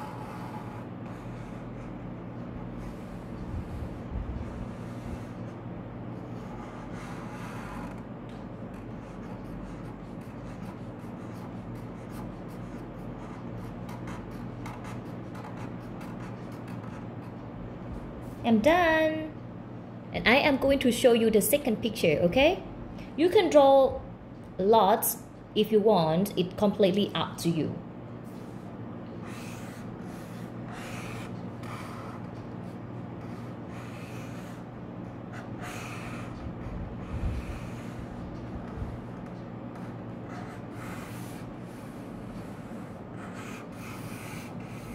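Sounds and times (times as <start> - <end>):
marker scratching on paper: 0.0 - 2.0, 6.2 - 8.0, 8.7 - 17.1, 29.2 - 34.7, 35.3 - 44.9
steady low hum: 0.0 - 44.9.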